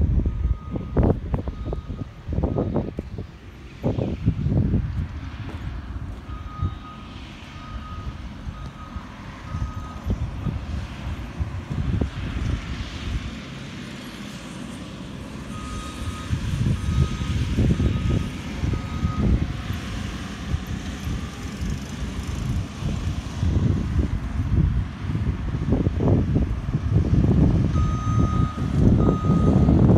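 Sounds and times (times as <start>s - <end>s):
reversing alarm beeping: 0.2s - 3.0s, 6.2s - 10.6s, 15.5s - 19.5s, 27.7s - 29.8s.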